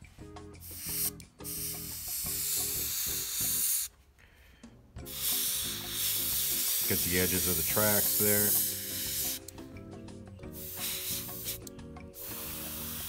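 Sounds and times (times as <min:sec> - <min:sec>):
airbrush spraying hiss: 0:00.6 - 0:03.9, 0:05.0 - 0:09.5, 0:10.5 - 0:13.0.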